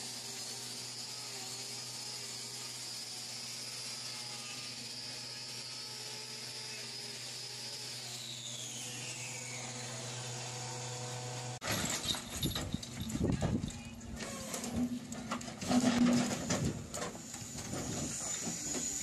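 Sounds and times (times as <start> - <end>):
grinder whine on hoof: 0.0 - 12.6, 13.3 - 19.0.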